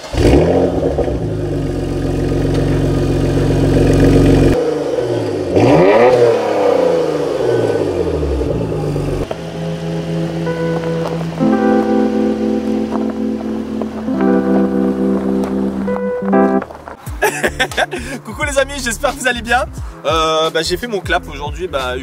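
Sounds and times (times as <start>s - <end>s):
car engine idling and revving: 0.0s - 17.0s.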